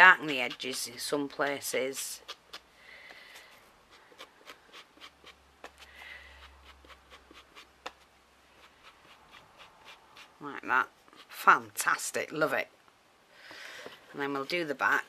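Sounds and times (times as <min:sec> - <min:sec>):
scratchy rubs: 0:00.0 - 0:01.1, 0:01.9 - 0:02.7, 0:03.3 - 0:11.6.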